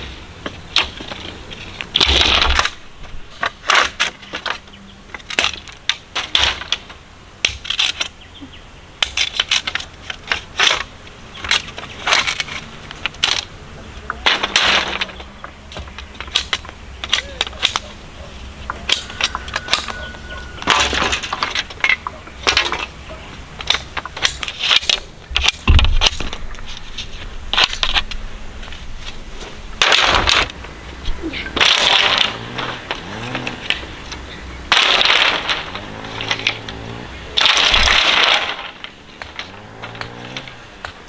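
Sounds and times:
bamboo poles crackling as they split: 0.0 - 41.0
machete chopping bamboo: 3.4 - 8.2, 9.0 - 13.5, 14.1 - 18.0, 18.6 - 23.0, 31.5 - 33.9, 34.7 - 41.0.

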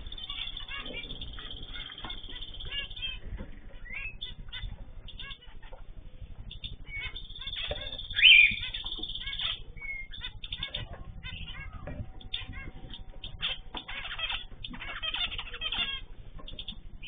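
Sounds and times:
birds chirping: 0.0 - 17.0
loud bird call: 6.9 - 16.1.

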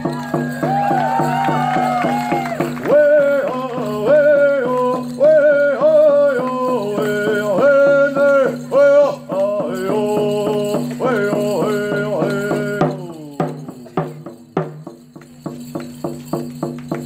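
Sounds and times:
person singing held phrases: 2.9 - 14.0.

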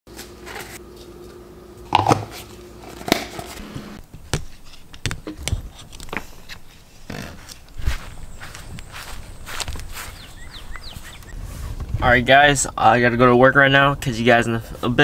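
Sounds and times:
sandal footsteps on concrete: 4.1 - 11.3.

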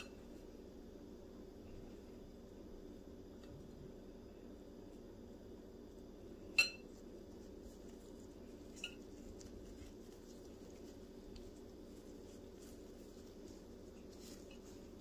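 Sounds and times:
low steady hum: 0.0 - 15.0
spoon clinking on glass bowl: 6.5 - 6.9.

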